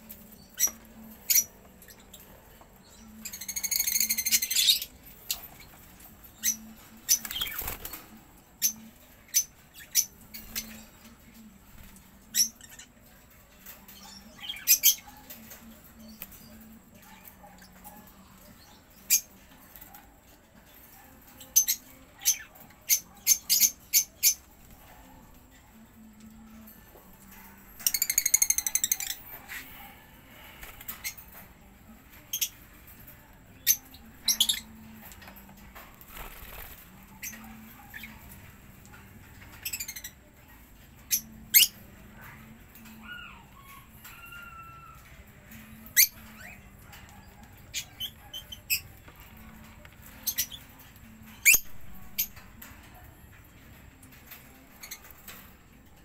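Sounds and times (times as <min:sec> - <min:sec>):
harsh bird chatter: 0:00.0 - 0:11.3, 0:27.8 - 0:43.2
budgerigars chirping and squawking: 0:03.2 - 0:10.9.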